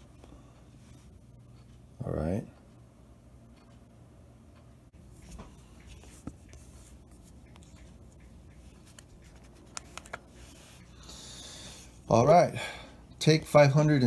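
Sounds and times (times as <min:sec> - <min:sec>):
fingers tapping a smartphone: 0:05.0 - 0:11.4
fingers rubbing a smartphone: 0:05.1 - 0:11.0.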